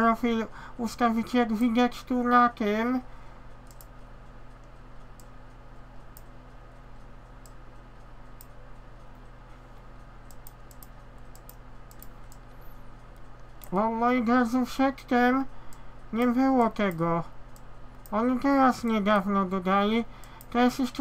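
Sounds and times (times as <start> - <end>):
low electrical hum: 0.0 - 21.0
mouse and keyboard clicks: 10.2 - 12.5.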